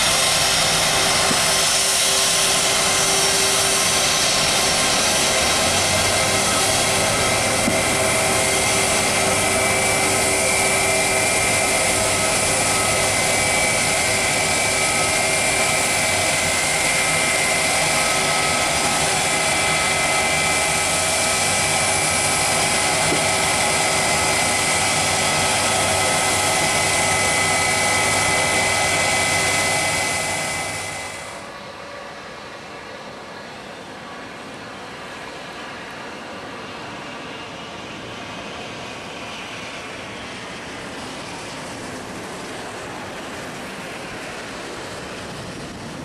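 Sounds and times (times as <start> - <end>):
jet engine roar with whine: 0.0 - 46.0.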